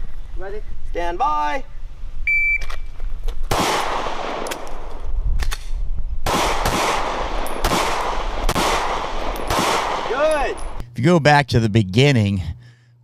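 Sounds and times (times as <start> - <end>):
handgun shots echoing: 6.3 - 10.7.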